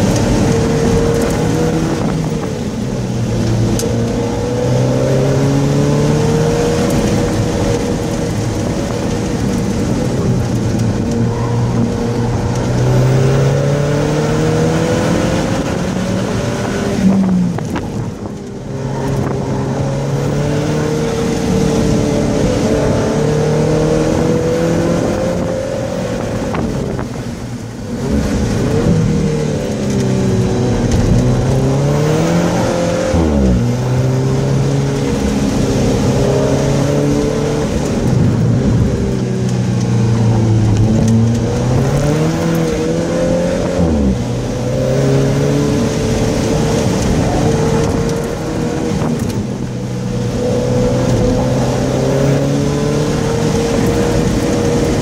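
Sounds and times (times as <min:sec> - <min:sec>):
car engine running hard: 0:00.0 - 0:55.0.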